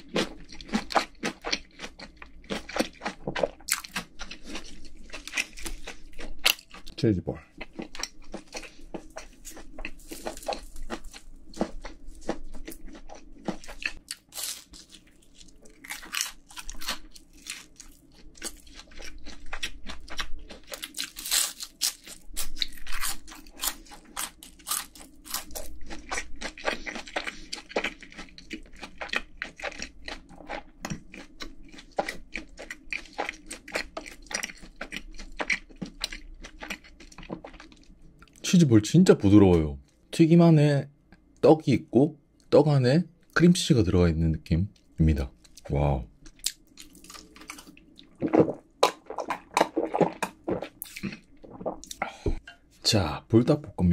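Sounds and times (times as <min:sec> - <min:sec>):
crunching and chewing: 0:00.0 - 0:38.6, 0:44.7 - 0:52.7.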